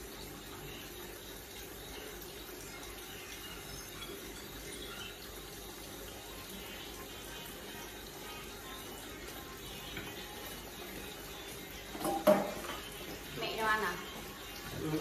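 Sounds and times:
dishes being rinsed: 9.7s - 15.0s
tap running into steel sink: 11.9s - 12.9s.

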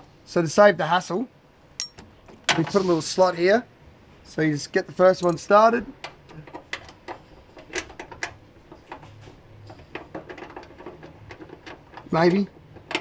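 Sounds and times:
metallic clicks and taps: 5.2s - 7.1s.

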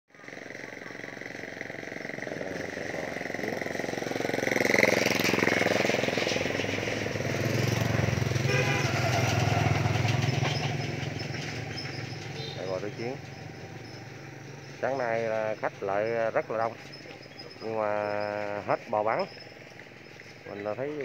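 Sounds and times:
engine running steadily: 0.1s - 21.0s
vehicle engine passing by: 0.3s - 21.0s.

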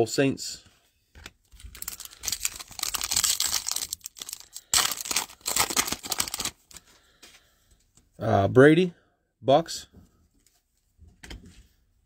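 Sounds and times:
foil wrapper crinkling and tearing: 1.6s - 6.8s.

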